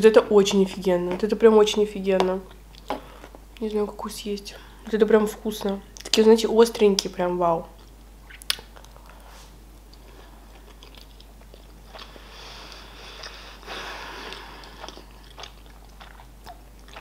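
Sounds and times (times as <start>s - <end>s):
wet chewing: 9.8s - 17.0s.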